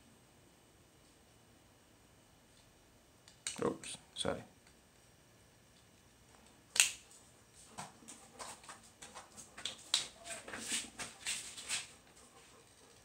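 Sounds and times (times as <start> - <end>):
sharp plastic snap: 6.7 - 7.0.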